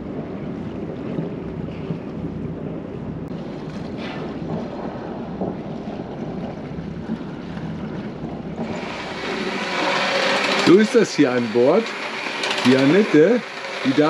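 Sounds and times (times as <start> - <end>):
wind buffeting microphone: 0.0 - 9.7
water washing along hull: 0.0 - 14.0
boat engine running: 4.6 - 14.0.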